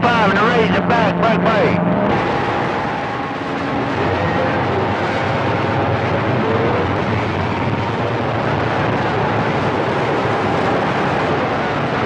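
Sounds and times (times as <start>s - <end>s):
radio static: 0.0s - 8.0s.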